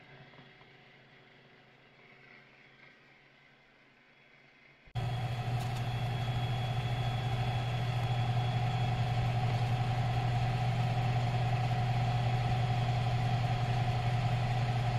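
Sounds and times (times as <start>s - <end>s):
electric blower running: 5.0s - 14.9s.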